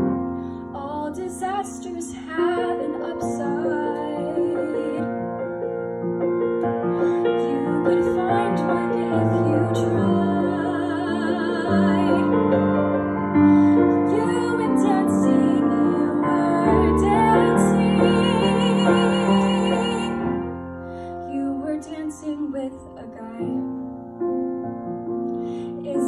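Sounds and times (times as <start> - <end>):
piano accompaniment: 0.0 - 26.0
woman singing: 0.7 - 5.3, 6.9 - 12.7, 13.4 - 20.6, 21.2 - 23.8, 25.6 - 26.0.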